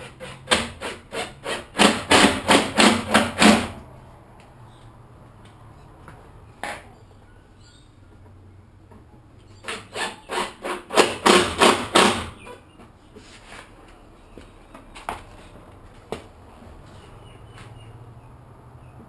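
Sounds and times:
hammer striking wooden door: 1.8s - 3.8s, 10.9s - 12.4s.

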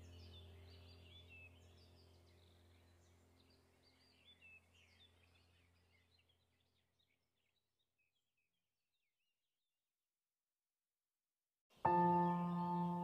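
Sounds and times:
low steady hum: 0.0s - 6.3s
faint bird chirps: 0.0s - 9.2s, 11.8s - 13.0s.

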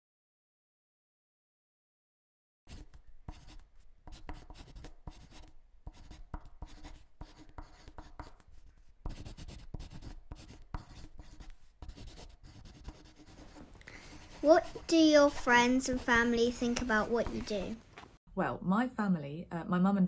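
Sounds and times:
pencil scratching on paper: 2.7s - 18.0s.

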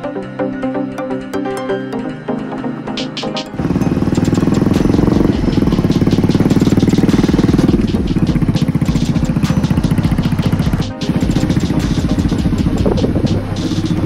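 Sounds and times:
motorcycle engine running: 3.5s - 14.0s.

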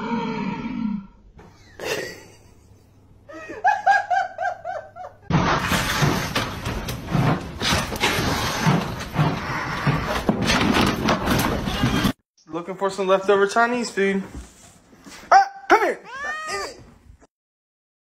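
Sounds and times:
person laughing: 1.5s - 5.3s.

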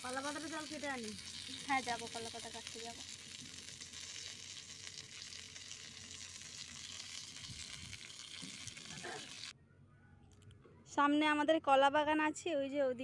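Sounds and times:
fish frying in hot oil: 0.0s - 9.5s.

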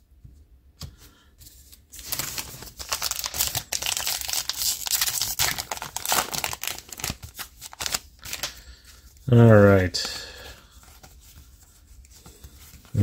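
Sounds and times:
wrapper tearing and crinkling: 2.0s - 8.6s.

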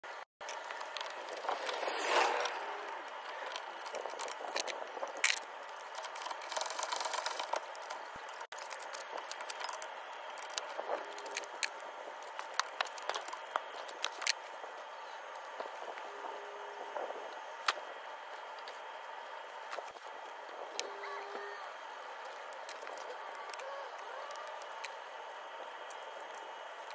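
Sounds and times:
metal clicks and scrapes: 0.4s - 14.6s, 21.6s - 23.7s.

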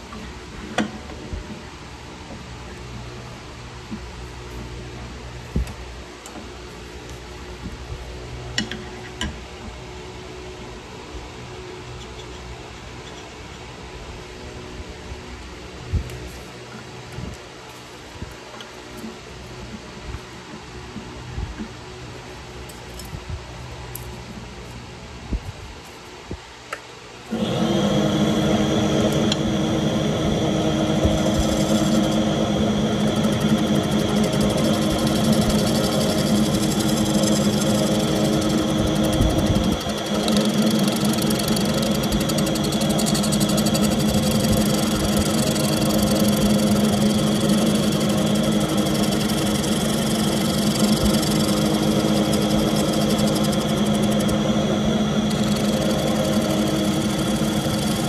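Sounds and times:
gouge scraping spinning wood: 27.3s - 58.0s
lathe motor hum: 27.3s - 58.0s.

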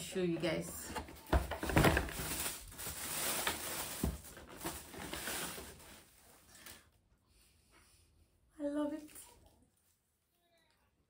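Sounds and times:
paper and cardboard rustling: 0.6s - 6.7s.

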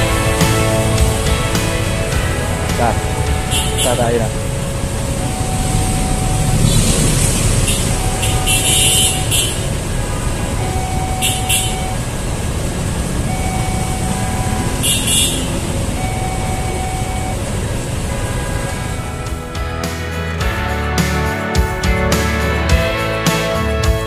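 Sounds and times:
level crossing alarm dinging: 0.0s - 9.8s, 10.5s - 19.6s
train passing: 0.0s - 10.8s, 14.0s - 20.4s
idling motorcycle and car engines: 0.0s - 20.5s.

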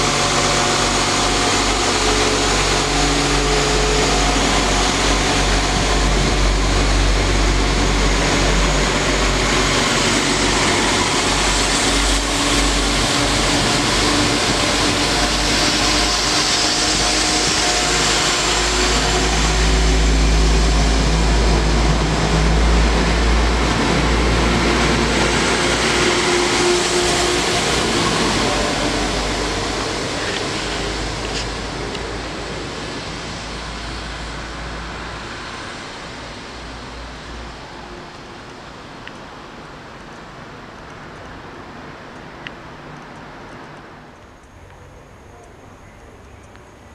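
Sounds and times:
diesel engine drone: 0.0s - 39.5s
wheel and rail noise: 0.0s - 46.9s.

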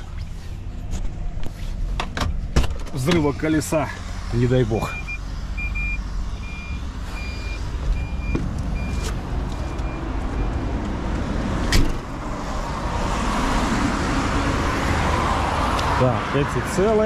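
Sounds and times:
idling truck and traffic rumble: 0.0s - 17.0s
passing vehicle rush: 0.0s - 17.0s
high warning beep: 4.8s - 10.6s.

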